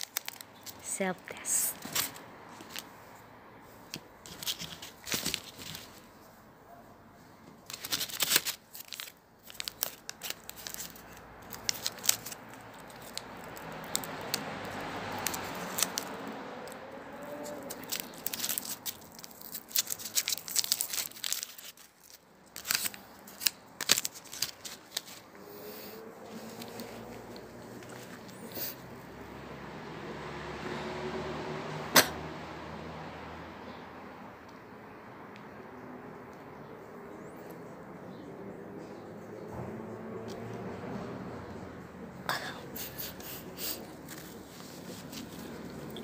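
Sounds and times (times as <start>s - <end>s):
packaging rustling: 0.0s - 0.8s, 4.2s - 6.1s, 7.6s - 16.2s, 17.2s - 25.3s
wrappers crinkling and tearing: 0.0s - 0.9s, 1.7s - 2.9s, 4.2s - 6.1s, 7.6s - 25.3s, 26.2s - 28.8s
packaging clicks: 7.6s - 16.1s, 17.3s - 25.3s.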